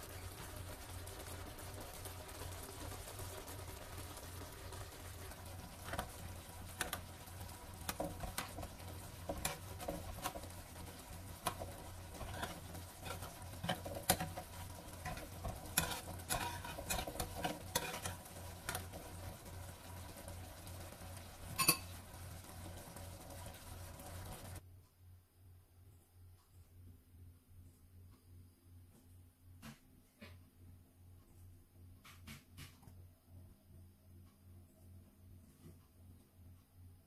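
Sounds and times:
spoon clinking and scraping pan: 7.9s - 19.1s, 21.4s - 22.0s.

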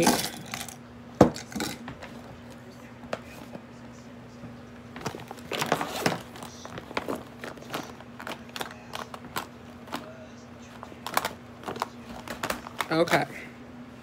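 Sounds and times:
faint steady hum: 0.0s - 14.0s
plastic bag rustling: 5.0s - 10.1s, 10.7s - 13.2s
small items clicking and clattering: 5.0s - 10.1s, 11.0s - 13.2s.

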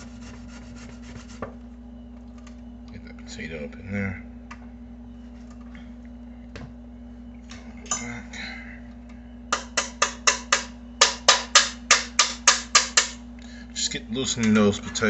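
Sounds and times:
potato grated on metal grater: 0.0s - 1.4s.

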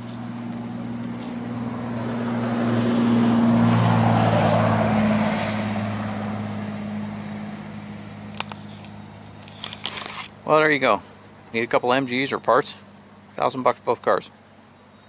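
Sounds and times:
vehicle driving past: 0.0s - 9.4s.

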